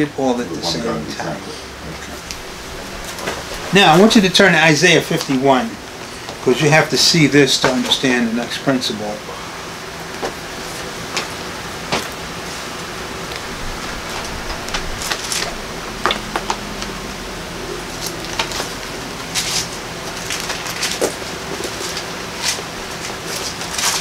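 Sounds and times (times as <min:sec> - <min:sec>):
low room hum: 0:00.0 - 0:24.0
pages rustling: 0:19.3 - 0:24.0.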